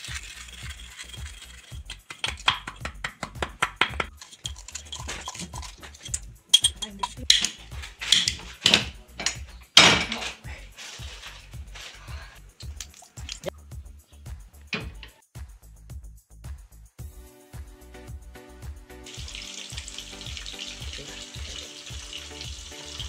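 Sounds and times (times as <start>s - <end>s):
music playing: 0.1s - 23.0s
dishes and cutlery clinking: 4.0s - 11.4s.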